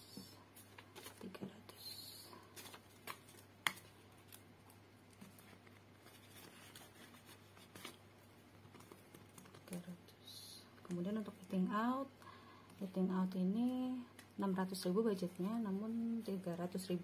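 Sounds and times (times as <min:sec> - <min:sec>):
banknotes rustling and tapping: 0:02.5 - 0:09.9.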